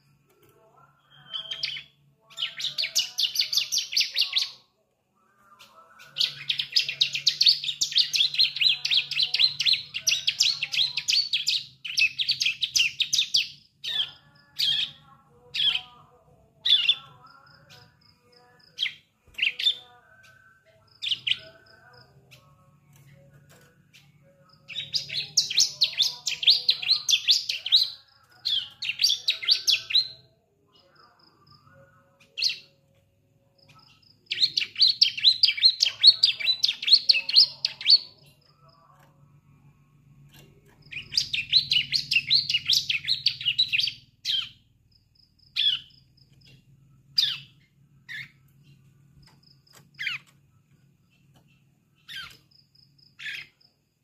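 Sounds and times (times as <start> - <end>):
rapid high bird chirping: 1.1 - 4.6, 40.3 - 53.7.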